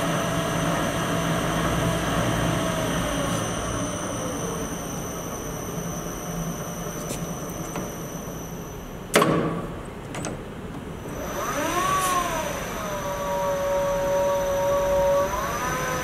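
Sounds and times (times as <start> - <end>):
lathe motor whining: 0.0 - 9.0, 11.0 - 16.0
lever clunk: 9.1 - 10.5.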